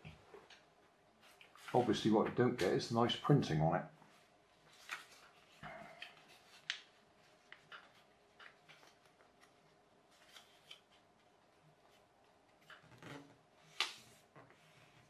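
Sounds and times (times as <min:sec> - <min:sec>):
paper crackling and rustling: 0:04.7 - 0:13.0.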